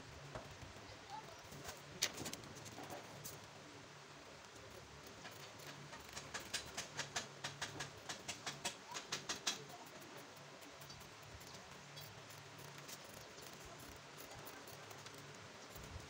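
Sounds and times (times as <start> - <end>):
rapid sharp clicks: 4.5 - 16.0.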